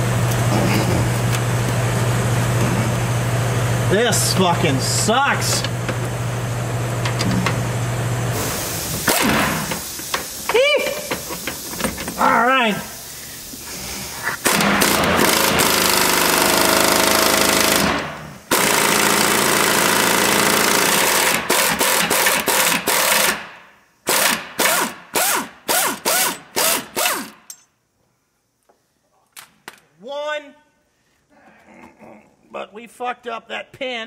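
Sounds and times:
pneumatic air hammer: 8.3s - 12.3s, 13.6s - 27.7s.

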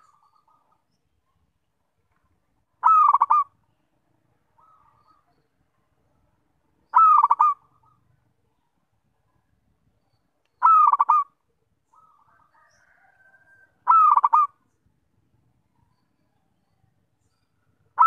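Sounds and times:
faint soft bird call: 2.1s - 5.9s
dove cooing: 2.8s - 3.5s, 6.9s - 8.0s, 10.6s - 13.2s, 13.8s - 14.6s.

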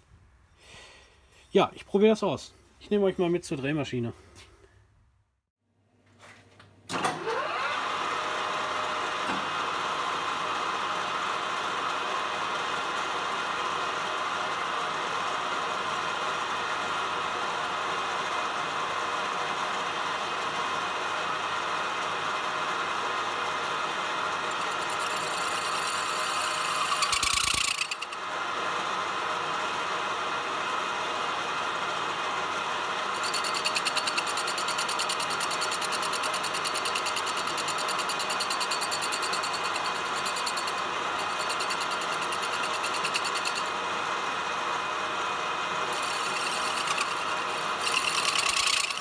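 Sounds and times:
metal lathe running: 24.4s - 28.2s, 33.0s - 43.8s, 45.8s - 49.0s
high rasping cutting chatter: 24.5s - 28.2s, 33.2s - 43.7s, 45.9s - 49.0s.

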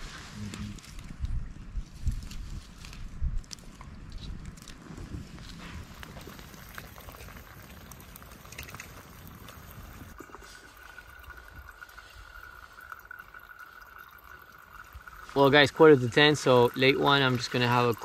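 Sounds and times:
campfire crackling: 0.0s - 18.0s
water boiling in kettle: 5.8s - 18.0s.

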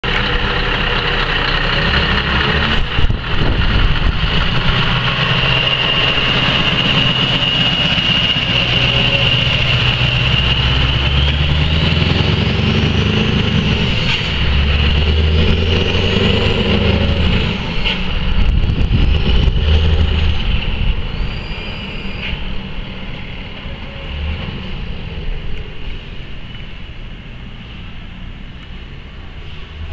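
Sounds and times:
diesel truck pulling away: 0.0s - 29.9s
high turbo whistle: 21.0s - 22.6s.

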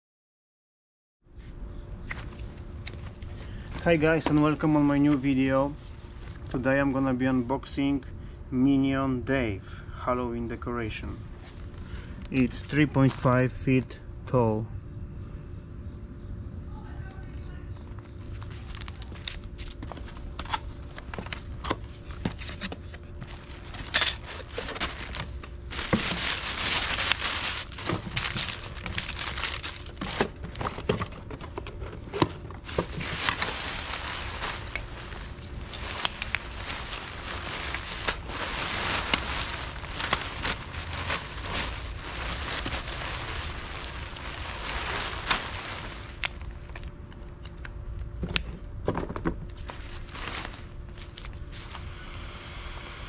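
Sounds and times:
packaging crinkling: 18.0s - 47.0s, 49.5s - 51.9s.

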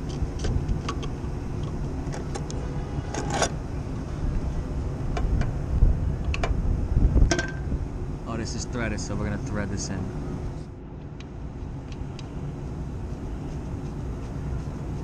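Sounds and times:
wind buffeting microphone: 0.0s - 9.1s.

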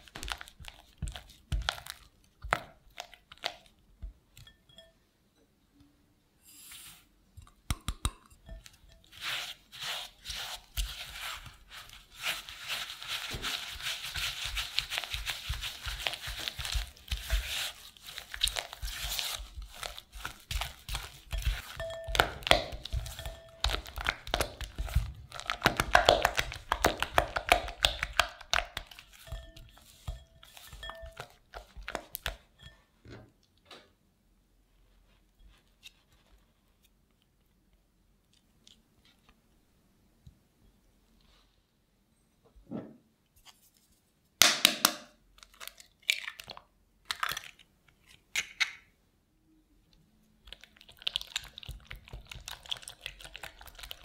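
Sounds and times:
spatula scraping glass bowl: 6.4s - 7.1s, 8.3s - 25.1s, 28.9s - 32.8s
spatula scraped with another: 6.4s - 7.2s.

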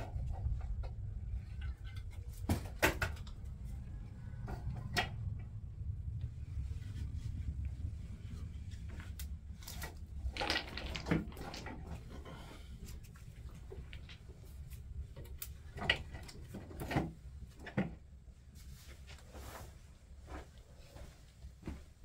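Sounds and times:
sticks knocking and rustling: 0.0s - 5.6s, 8.3s - 18.1s
wood fire crackling: 5.0s - 16.5s.

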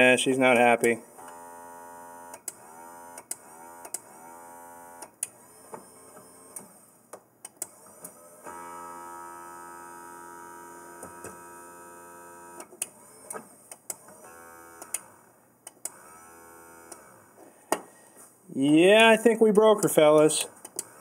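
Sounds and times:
motor buzzing whine: 7.7s - 13.5s, 14.1s - 15.2s, 15.8s - 17.3s.

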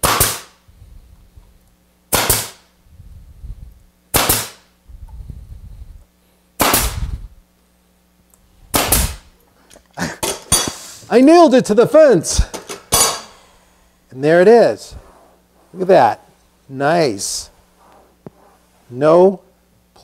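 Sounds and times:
pneumatic nailer firing into plywood: 0.0s - 0.6s, 2.1s - 2.7s, 4.1s - 4.7s, 6.6s - 7.2s, 8.7s - 9.3s.

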